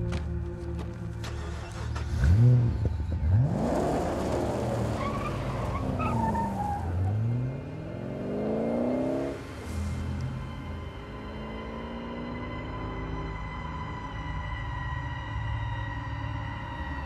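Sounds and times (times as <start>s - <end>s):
car engine revving: 1.2s - 14.0s.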